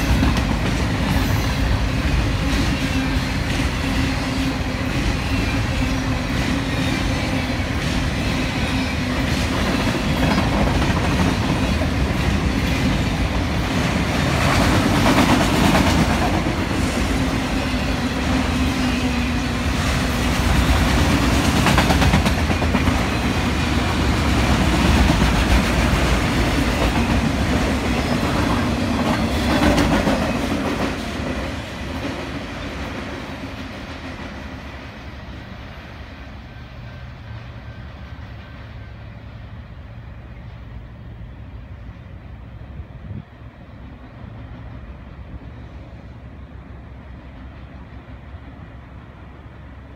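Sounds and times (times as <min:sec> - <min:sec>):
freight train wheels clattering: 0:00.0 - 0:34.8.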